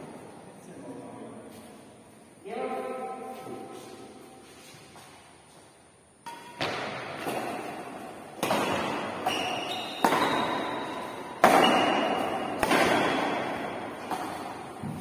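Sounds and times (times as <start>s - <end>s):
racket hitting shuttlecock: 6.2s - 15.0s.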